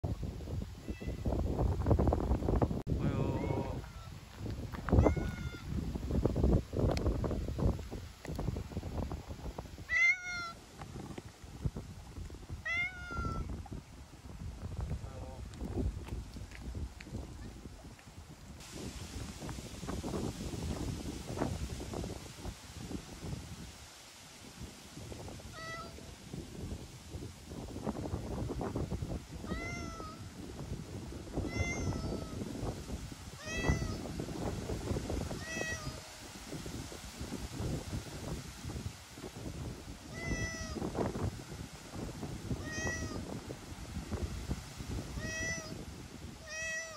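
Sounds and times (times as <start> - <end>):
wind buffeting microphone: 0.0 - 46.9
cat meowing: 0.8 - 1.2, 5.0 - 5.7, 9.9 - 10.6, 12.6 - 13.5, 25.5 - 26.0, 29.4 - 30.2, 31.5 - 32.4, 33.4 - 34.0, 35.4 - 36.0, 40.1 - 40.8, 42.6 - 43.2, 45.2 - 45.8, 46.4 - 46.9.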